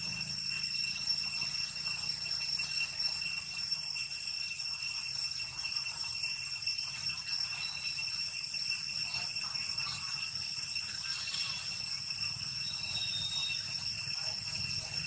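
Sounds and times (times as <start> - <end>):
cicadas droning: 0.0 - 15.0.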